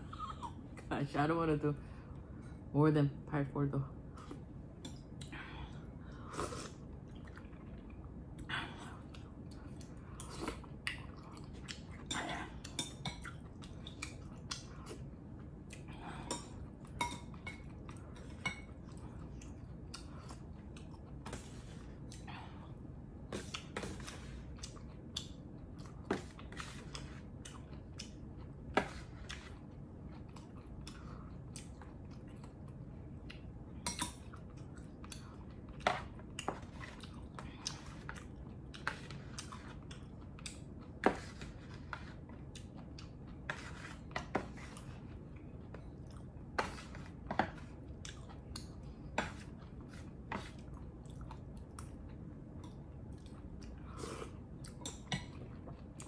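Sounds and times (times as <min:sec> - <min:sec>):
person chewing: 0:04.2 - 0:56.0.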